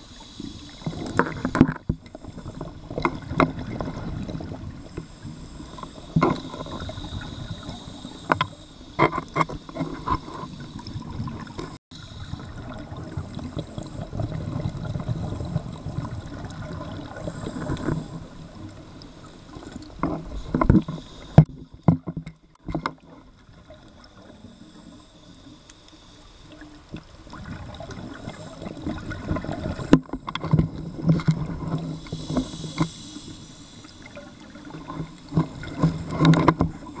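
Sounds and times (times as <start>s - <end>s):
muffled underwater water rumbling: 0.0s - 24.6s, 26.6s - 37.0s.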